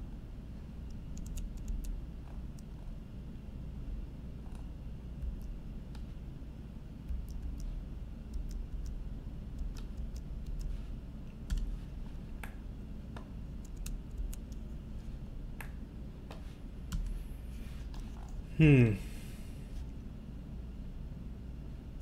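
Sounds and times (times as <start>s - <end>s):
keyboard and mouse clicks: 0.9s - 2.8s, 7.1s - 10.8s, 13.2s - 14.6s.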